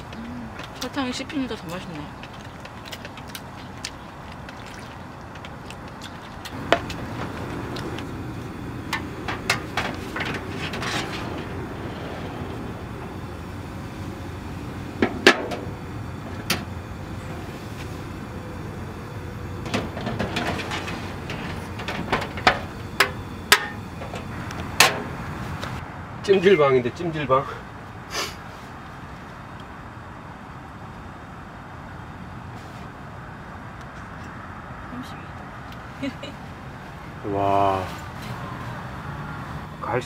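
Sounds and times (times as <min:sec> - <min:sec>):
fan heater humming: 0:00.0 - 0:28.1.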